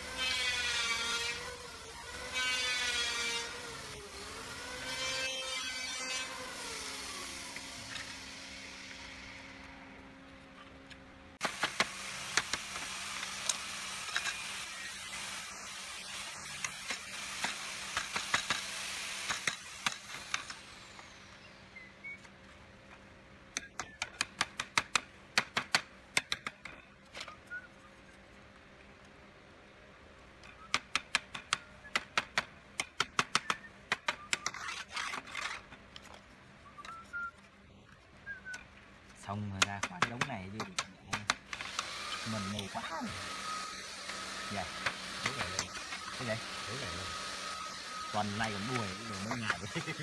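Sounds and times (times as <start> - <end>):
steady hissing noise: 11.4 - 21.5.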